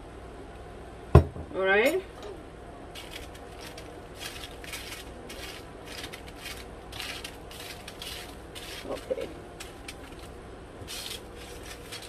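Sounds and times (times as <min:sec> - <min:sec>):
foil pan crinkling: 0:03.0 - 0:12.0.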